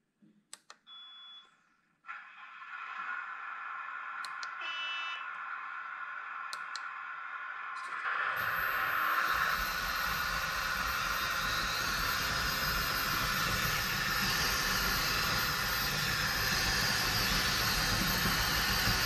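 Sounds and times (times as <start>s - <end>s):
short high beep: 0.9s - 1.5s
model excavator whirring hum: 5.4s - 19.0s.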